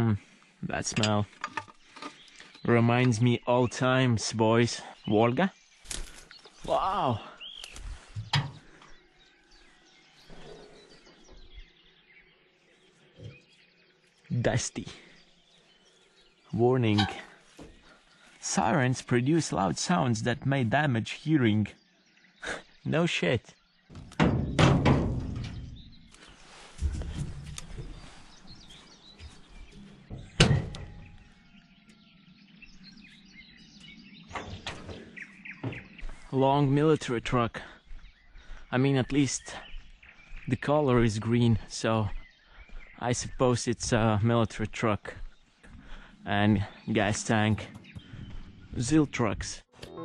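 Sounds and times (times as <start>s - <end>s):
birds chirping: 0.0s - 50.0s
loud thunk: 23.9s - 25.8s, 30.1s - 31.1s
soft knocks and rustles: 24.0s - 31.2s.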